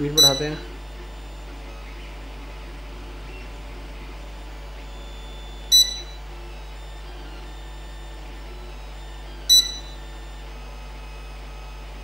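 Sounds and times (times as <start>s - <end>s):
short electronic beep: 0.0s - 0.8s, 5.1s - 6.2s, 9.5s - 10.0s
steady low hum: 0.0s - 12.0s.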